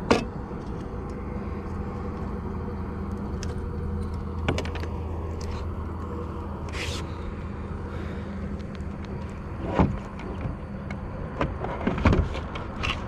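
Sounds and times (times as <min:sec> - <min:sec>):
boat motor humming: 0:00.0 - 0:12.9.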